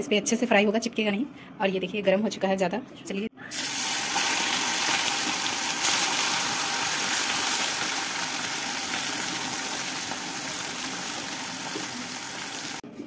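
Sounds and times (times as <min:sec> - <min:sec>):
fish frying in hot oil: 0:03.6 - 0:12.8.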